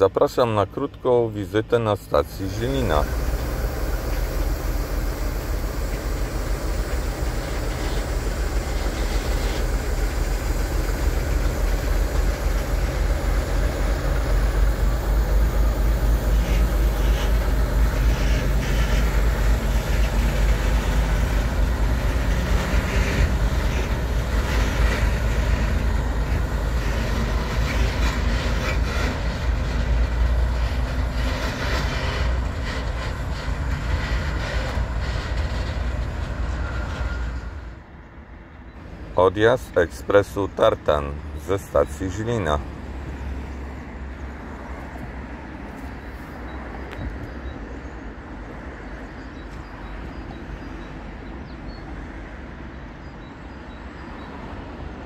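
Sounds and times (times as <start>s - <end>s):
diesel locomotive rumbling: 0.0s - 55.0s
wheels clicking over rail joints: 2.2s - 37.1s.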